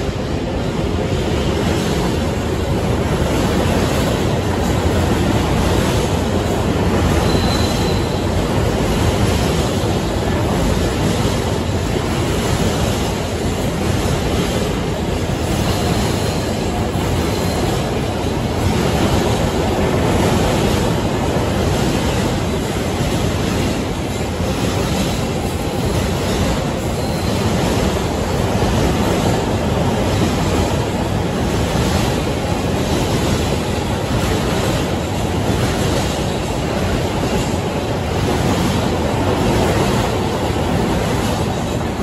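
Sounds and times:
train wheels rumbling on rail: 0:00.0 - 0:42.0
faint high wheel squeals: 0:07.1 - 0:08.4, 0:26.9 - 0:27.6.

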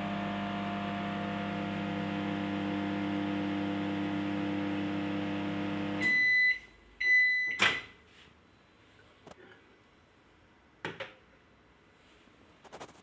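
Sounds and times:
microwave oven humming: 0:00.0 - 0:07.3
microwave beeps: 0:05.9 - 0:08.0.

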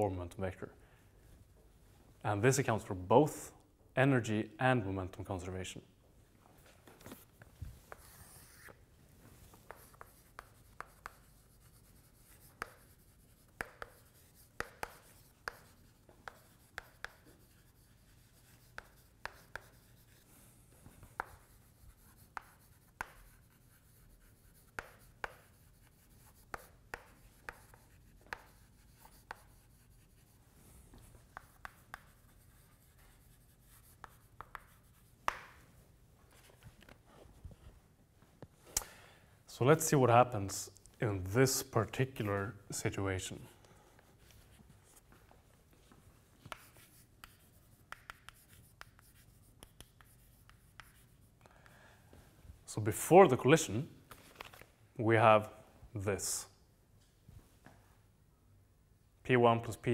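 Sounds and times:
chalk on a blackboard: 0:06.9 - 0:35.7, 0:46.4 - 0:51.8.

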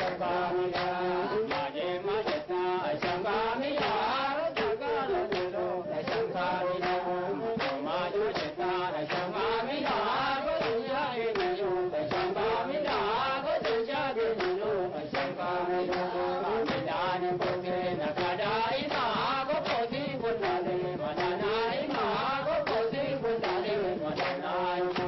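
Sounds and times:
group singing a chant: 0:00.0 - 0:25.0
rhythmic handclaps: 0:00.0 - 0:25.0.

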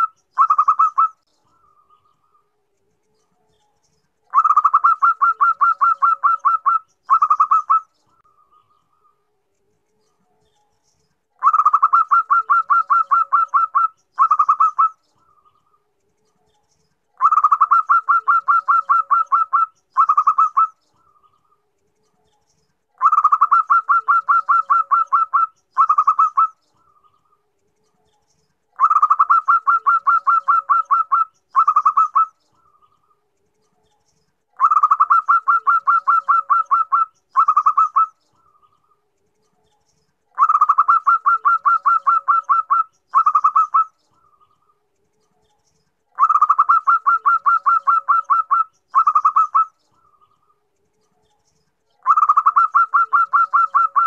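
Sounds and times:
dove cooing: 0:00.0 - 0:01.2, 0:04.3 - 0:07.9, 0:11.4 - 0:15.5, 0:17.2 - 0:20.8, 0:23.0 - 0:27.1, 0:28.8 - 0:32.8, 0:34.6 - 0:38.2, 0:40.4 - 0:43.9, 0:46.2 - 0:49.7, 0:52.0 - 0:54.0.

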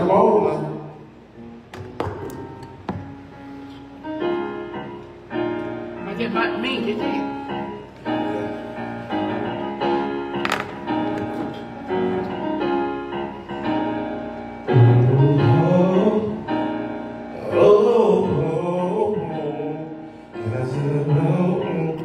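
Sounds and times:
piano chords: 0:00.0 - 0:22.0
person singing: 0:14.8 - 0:16.7.

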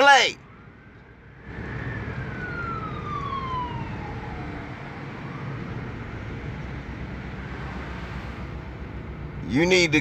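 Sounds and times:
siren wailing: 0:00.0 - 0:05.9.

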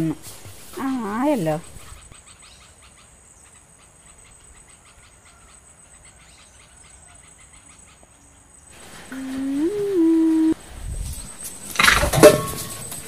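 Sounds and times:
insects chirping: 0:00.0 - 0:13.0.

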